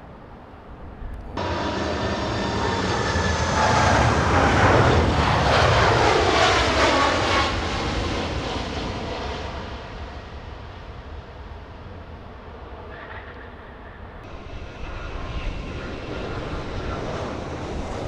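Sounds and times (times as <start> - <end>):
jet engines passing overhead: 0.0 - 18.0
engine whine sliding down: 1.4 - 7.8.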